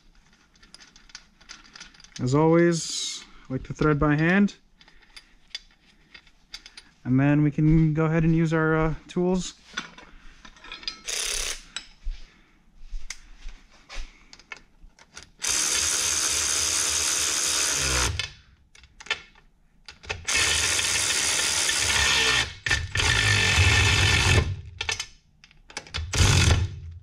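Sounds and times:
impact wrench running: 0:11.1 - 0:11.6, 0:15.4 - 0:18.3, 0:20.3 - 0:24.7, 0:26.1 - 0:26.9.

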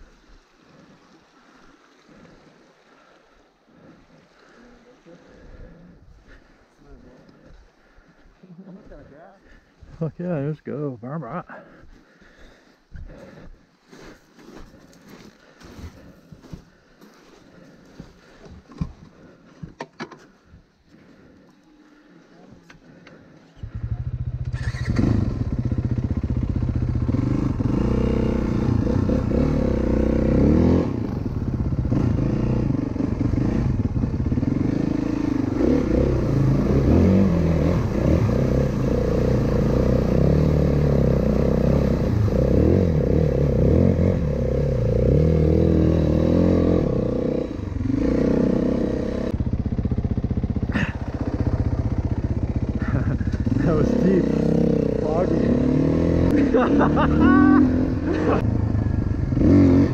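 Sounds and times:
dirt bike engine revving: 0:23.6 - 0:59.9.

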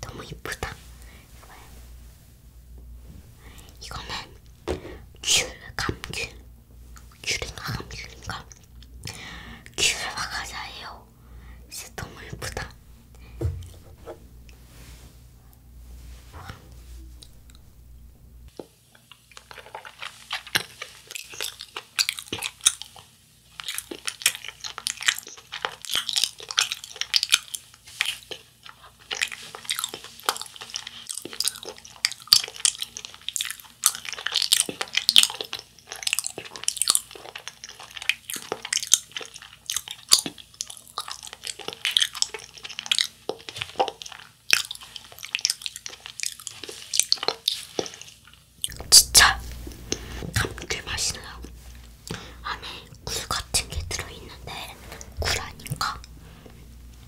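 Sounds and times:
close chewing: 0:18.9 - 0:56.2.

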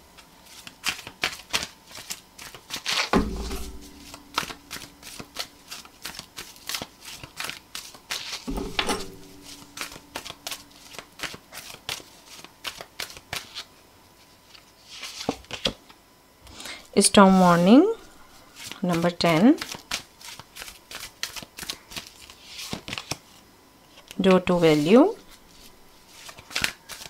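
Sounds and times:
cards being shuffled: 0:00.2 - 0:13.7, 0:14.5 - 0:15.8, 0:18.6 - 0:27.0.

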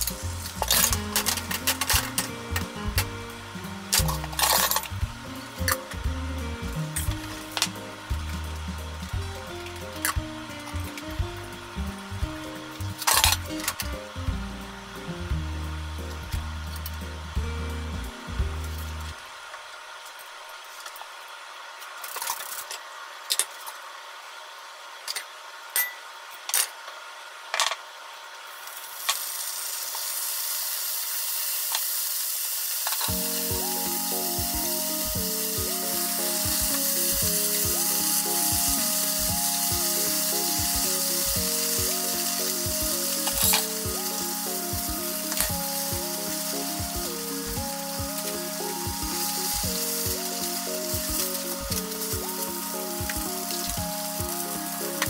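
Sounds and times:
light background music: 0:00.0 - 0:19.2, 0:33.1 - 0:55.0
food sizzling in pan: 0:00.0 - 0:26.4, 0:27.0 - 0:55.0.

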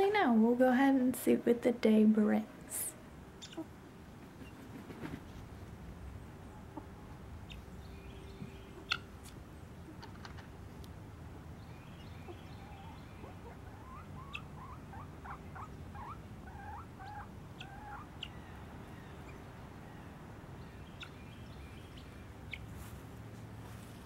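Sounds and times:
guinea fowl chirping: 0:03.4 - 0:03.7, 0:06.6 - 0:09.2, 0:11.8 - 0:19.5, 0:20.8 - 0:22.9.

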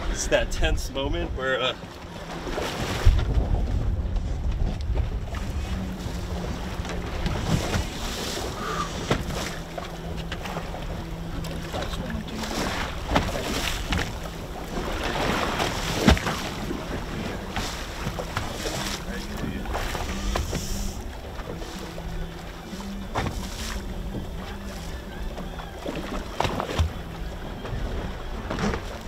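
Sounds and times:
water slapping boat hull: 0:00.0 - 0:29.0
wind buffeting microphone: 0:02.3 - 0:23.2.

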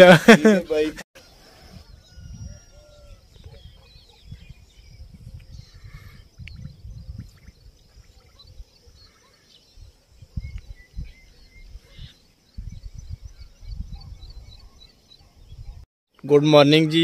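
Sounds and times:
small birds chirping faintly: 0:00.6 - 0:16.4
wind gusting over microphone: 0:01.4 - 0:15.8.

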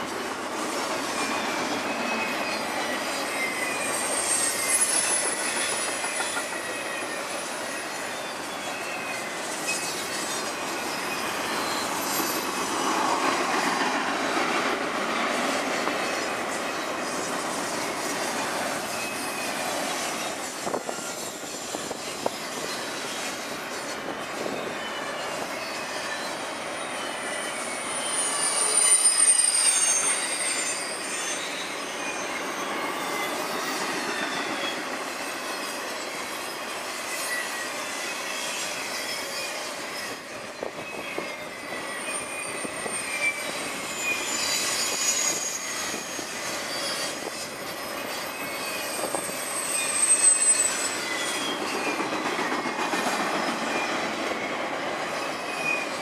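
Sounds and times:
high wheel squeal: 0:00.0 - 0:56.0
rumble of train wheels on track: 0:00.0 - 0:56.0.

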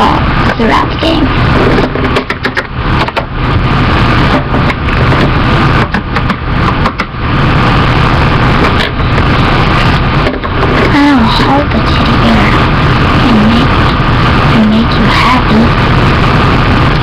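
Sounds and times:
loud steady rumbling: 0:00.0 - 0:17.0
scattered clicks and knocks: 0:01.5 - 0:03.3, 0:04.2 - 0:07.2, 0:08.6 - 0:11.0.

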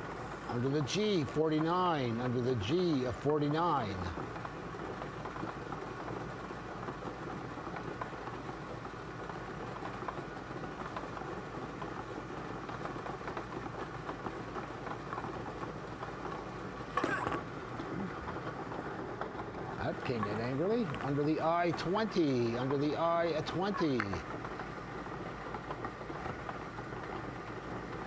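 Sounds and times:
bingo balls rattling in machine: 0:03.0 - 0:28.0.

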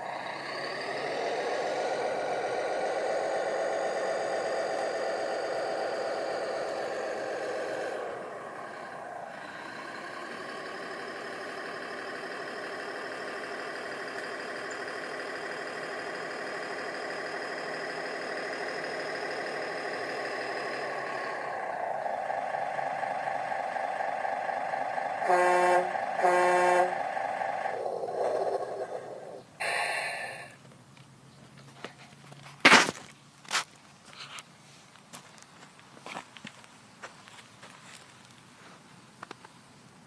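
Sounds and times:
toy diesel engine sound: 0:00.0 - 0:30.6
short horn toots: 0:25.2 - 0:27.0.

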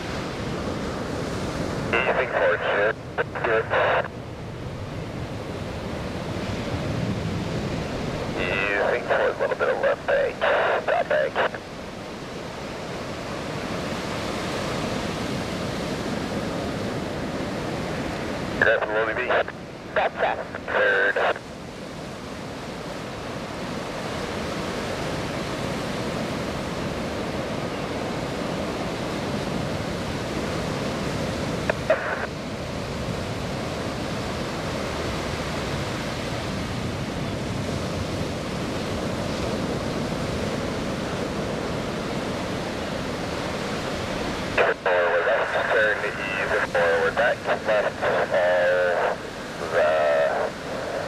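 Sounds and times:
jet aircraft roar: 0:44.6 - 0:51.0.

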